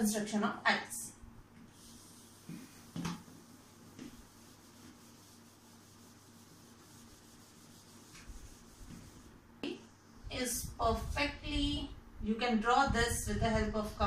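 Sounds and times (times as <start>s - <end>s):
eraser rubbing on whiteboard: 1.7s - 9.4s.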